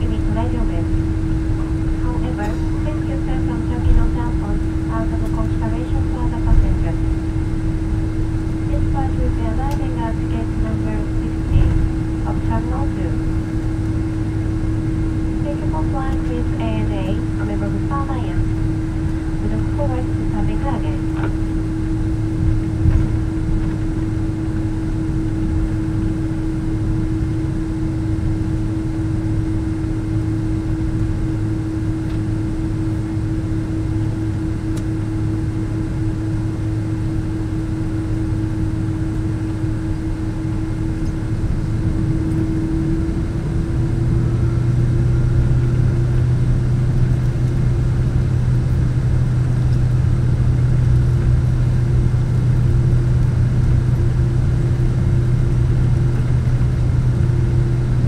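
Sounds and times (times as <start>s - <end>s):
aircraft cabin engine drone: 0.0s - 58.0s
low hum: 0.0s - 58.0s.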